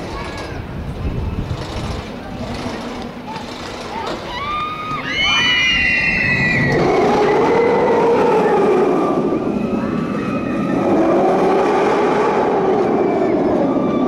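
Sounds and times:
roller coaster rumbling roar: 0.0s - 14.0s
riders screaming: 4.2s - 14.0s.

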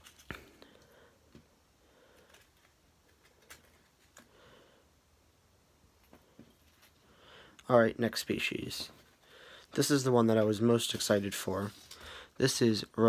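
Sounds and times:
faint clicks and rustles: 0.0s - 4.4s, 6.0s - 7.1s.

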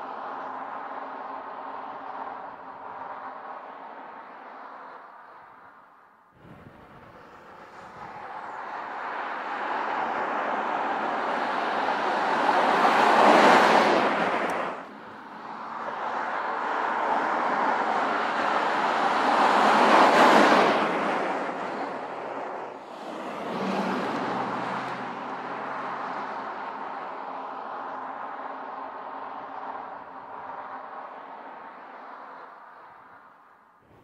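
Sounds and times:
car driving past: 22.7s - 27.2s.

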